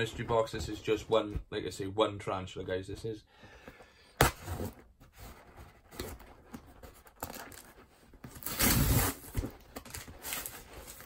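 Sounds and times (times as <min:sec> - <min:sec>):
tape ripping off box: 0:08.3 - 0:11.0.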